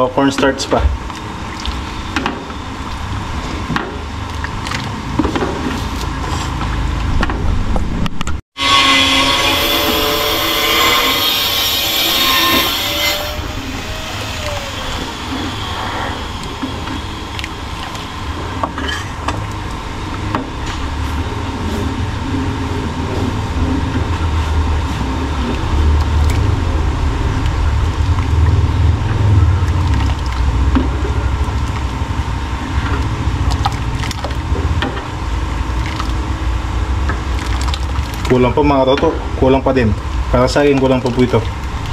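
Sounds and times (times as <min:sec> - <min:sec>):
steady low rumble: 0:13.2 - 0:41.9.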